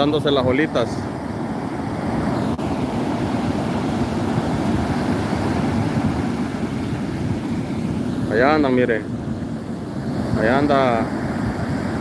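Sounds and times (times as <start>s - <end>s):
ocean surf breaking: 0.0s - 12.0s.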